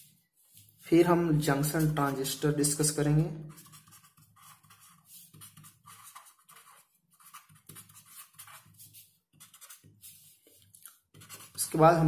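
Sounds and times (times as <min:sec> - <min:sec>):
scratching of writing: 0:00.0 - 0:02.5, 0:03.4 - 0:12.0.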